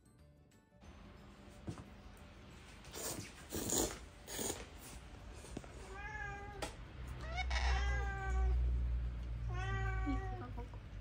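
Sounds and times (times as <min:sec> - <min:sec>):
cat meowing: 0:05.9 - 0:08.6, 0:09.4 - 0:10.7.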